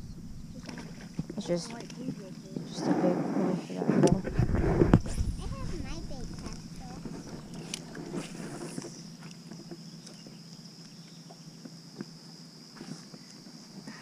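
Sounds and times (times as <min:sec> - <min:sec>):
high-pitched hum: 0:00.0 - 0:02.7.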